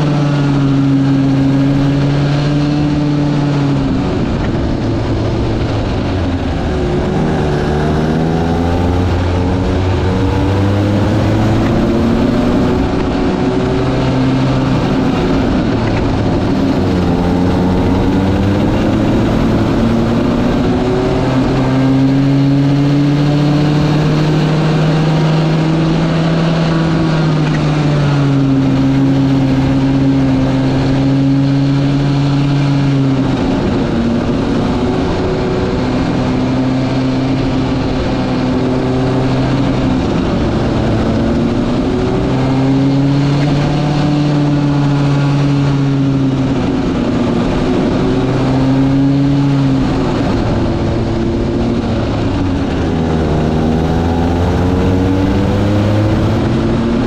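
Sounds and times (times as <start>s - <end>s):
go-kart engines: 0.0s - 57.0s.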